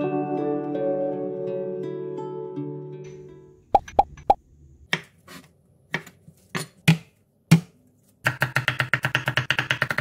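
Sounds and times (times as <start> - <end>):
rapid knife chopping: 8.3 - 10.0.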